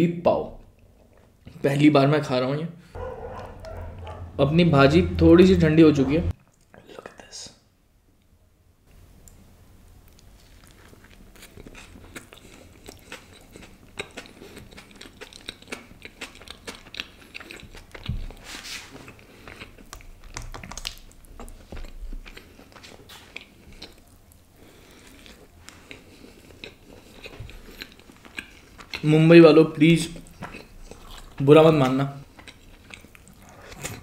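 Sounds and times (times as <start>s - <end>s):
man chewing bread: 3.0s - 4.4s, 10.0s - 29.2s, 30.1s - 34.0s
wet mouth clicks and smacks: 19.5s - 22.0s.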